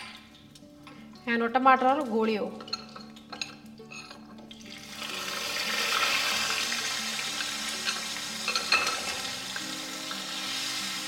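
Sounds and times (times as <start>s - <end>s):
tomato sizzling in hot oil: 3.1s - 11.0s.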